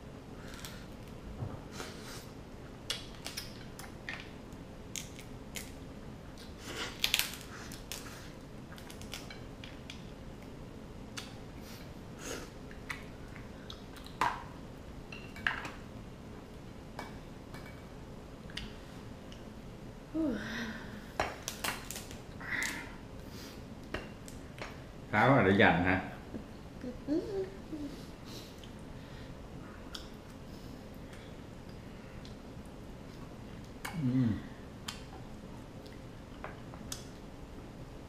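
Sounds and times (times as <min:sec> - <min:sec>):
crab shell cracking: 0:04.9 - 0:05.7, 0:06.9 - 0:08.0, 0:08.8 - 0:10.0.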